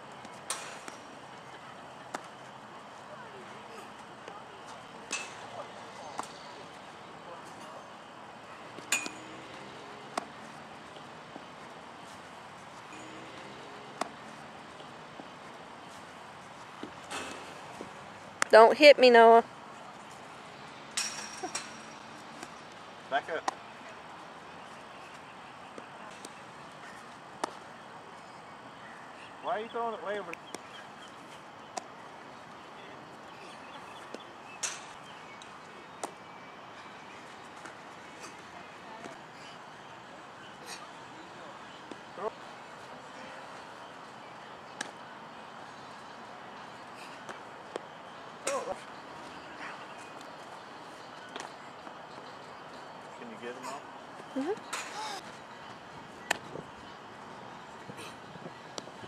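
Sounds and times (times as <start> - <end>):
baseball smacks: 2.1 - 2.4, 5.0 - 6.4, 8.7 - 11.1, 13.3 - 14.9, 27.4 - 27.6, 44.7 - 45.0, 56.2 - 56.5
baseball knocks: 8.7 - 10.4, 13.4 - 14.2, 56.3 - 56.5.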